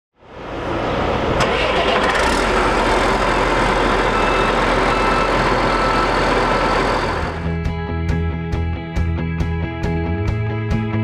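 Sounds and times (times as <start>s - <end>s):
engine starting and running: 0.6s - 7.6s.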